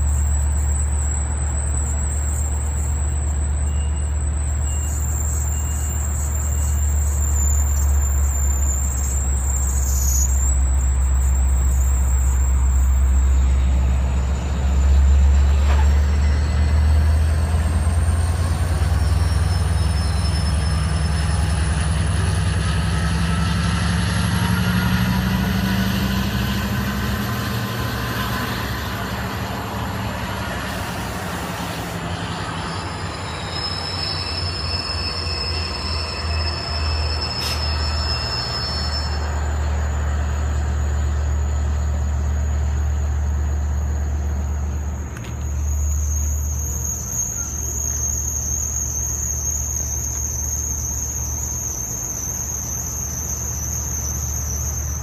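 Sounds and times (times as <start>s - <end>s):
diesel train engine droning: 0.0s - 55.0s
faint high whine: 26.1s - 55.0s.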